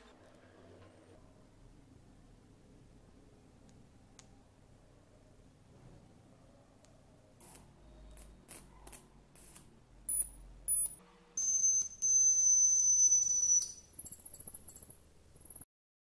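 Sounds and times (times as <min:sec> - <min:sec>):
high-pitched electronic whine: 0:09.4 - 0:15.6.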